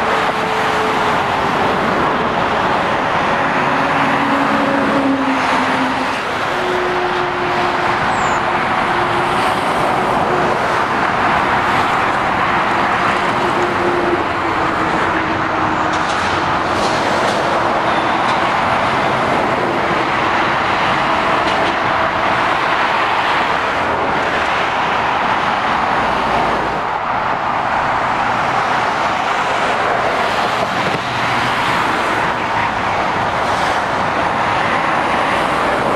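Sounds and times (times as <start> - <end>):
road traffic roar: 0.0 - 35.9.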